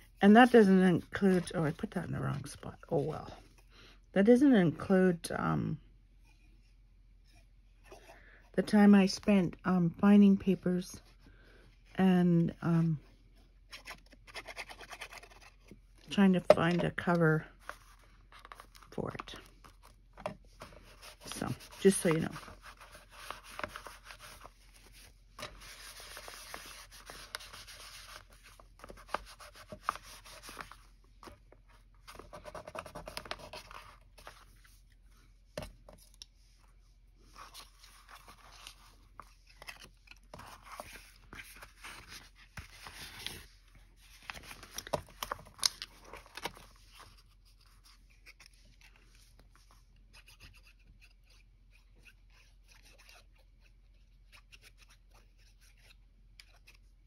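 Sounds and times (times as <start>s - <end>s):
paper sheets rustling: 20.5s - 31.3s.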